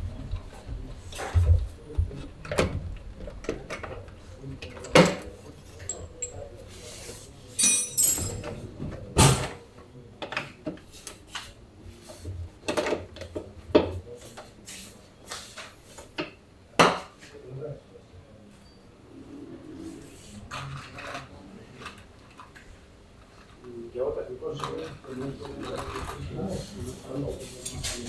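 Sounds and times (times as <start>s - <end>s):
metallic clinks: 5.8s - 6.5s, 7.6s - 8.5s.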